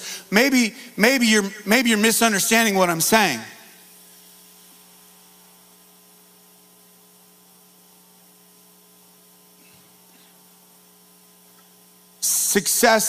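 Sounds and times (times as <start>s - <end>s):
faint mains hum: 0.0s - 13.0s.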